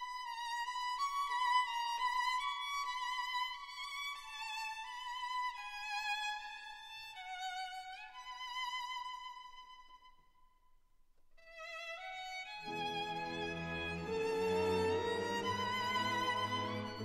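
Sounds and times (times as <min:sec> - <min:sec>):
slow violin melody: 0:11.4 - 0:17.0.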